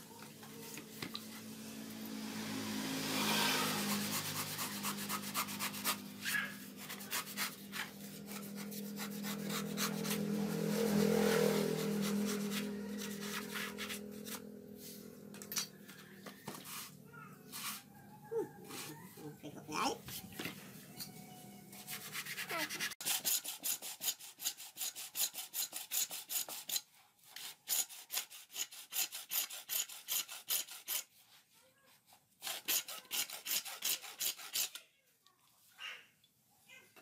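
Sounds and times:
knife scraping coconut husk: 0:03.3 - 0:14.6, 0:16.5 - 0:18.0, 0:21.7 - 0:31.5, 0:32.1 - 0:34.8.

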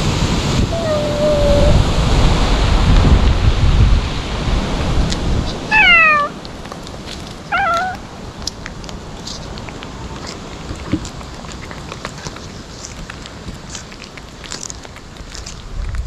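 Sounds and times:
low rumbling noise: 0:00.0 - 0:13.1
cat meowing: 0:00.7 - 0:01.8, 0:05.7 - 0:06.4, 0:07.5 - 0:08.1.

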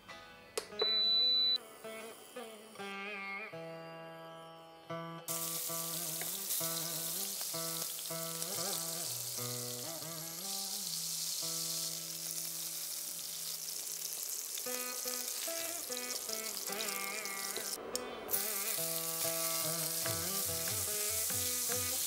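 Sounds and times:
prawns sizzling in oil: 0:05.3 - 0:22.0
background instrumental music: 0:14.7 - 0:22.0.

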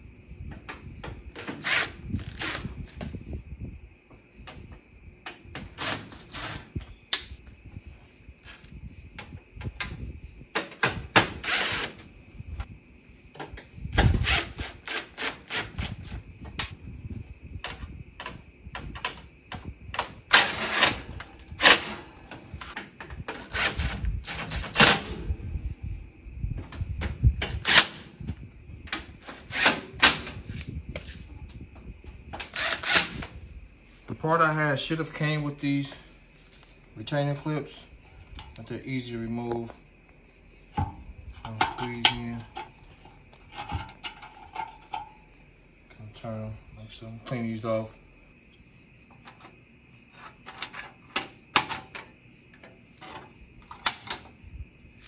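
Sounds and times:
cordless drill driving screws: 0:01.5 - 0:02.6, 0:11.4 - 0:11.9, 0:14.2 - 0:16.0, 0:32.5 - 0:33.2
clicks and clatter: 0:43.4 - 0:45.1.

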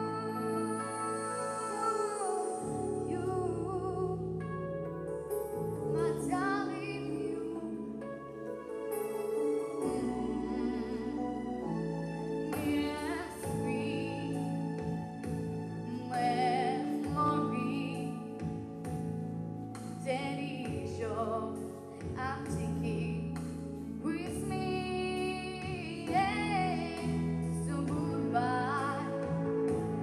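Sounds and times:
girl singing into microphone: 0:00.0 - 0:04.4, 0:05.9 - 0:07.9, 0:12.6 - 0:14.5, 0:15.9 - 0:18.2, 0:20.0 - 0:23.4, 0:24.0 - 0:29.4
instrumental accompaniment: 0:00.0 - 0:30.0.

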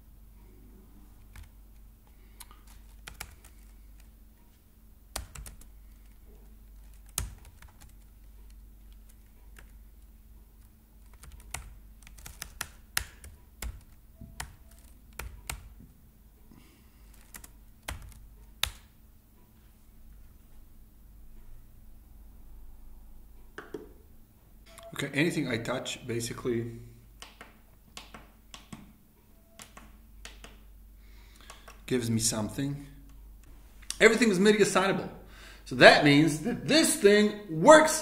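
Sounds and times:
faint low hum: 0:00.0 - 0:38.0
keyboard keystrokes: 0:29.5 - 0:30.6.

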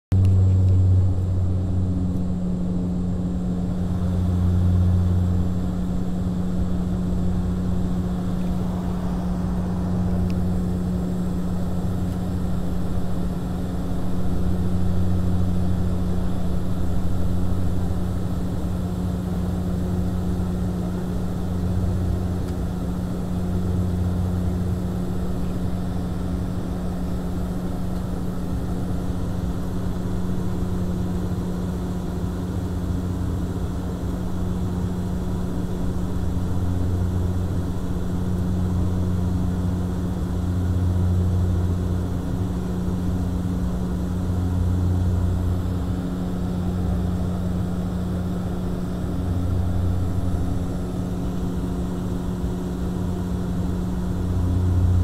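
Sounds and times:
low throb: 0:00.1 - 0:13.1
airliner engine drone: 0:00.1 - 0:55.0.

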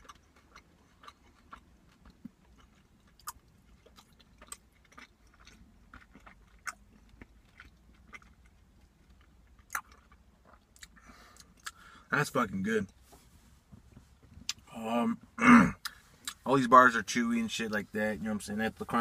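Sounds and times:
chewing crunchy bar: 0:00.0 - 0:11.9.

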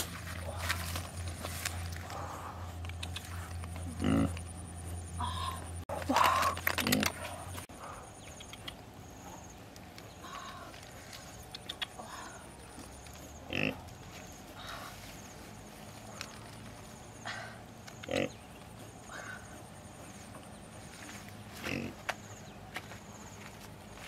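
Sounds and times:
pig grunting: 0:02.0 - 0:04.5, 0:13.4 - 0:13.9, 0:18.0 - 0:19.6, 0:21.6 - 0:22.0.

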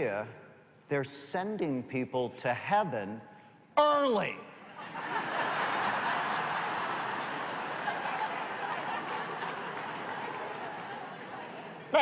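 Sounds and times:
audience laughing: 0:04.7 - 0:12.0.

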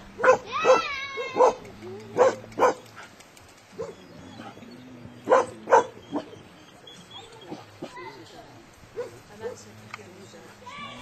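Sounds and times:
dog barking: 0:00.2 - 0:01.6, 0:02.2 - 0:02.8, 0:05.3 - 0:06.3, 0:09.0 - 0:09.6.

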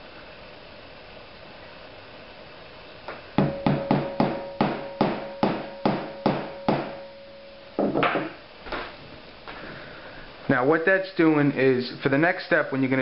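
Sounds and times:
mallet striking metal punch: 0:03.4 - 0:08.4.

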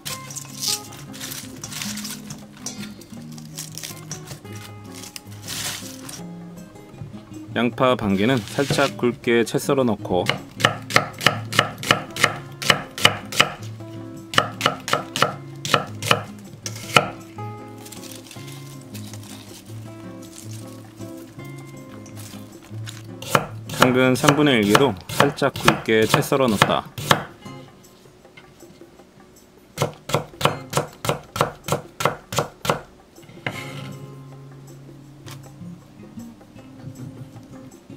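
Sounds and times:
knife chopping on wooden board: 0:10.2 - 0:13.7, 0:14.3 - 0:17.2, 0:22.9 - 0:27.4, 0:29.8 - 0:33.6.

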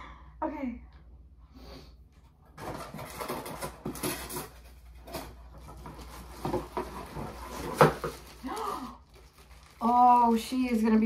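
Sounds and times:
packaging rustling and crackling: 0:02.6 - 0:11.0.

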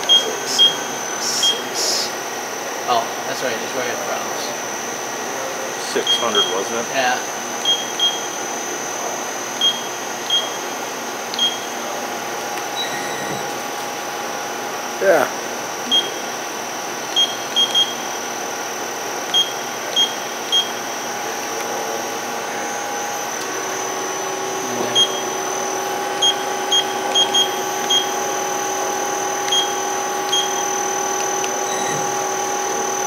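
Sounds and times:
machine electrical hum: 0:00.0 - 0:33.0
control panel beeps: 0:07.6 - 0:08.4, 0:09.6 - 0:10.6, 0:11.3 - 0:11.8, 0:12.7 - 0:13.6, 0:15.9 - 0:16.2, 0:17.1 - 0:18.0, 0:19.3 - 0:20.8, 0:24.9 - 0:25.4, 0:26.2 - 0:28.2, 0:29.2 - 0:33.0.

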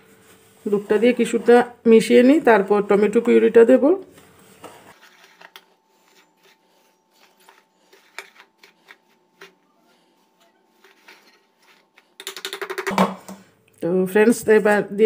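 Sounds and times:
rapid whisk strokes: 0:05.0 - 0:12.2
wire whisk scraping plate: 0:05.0 - 0:12.2.

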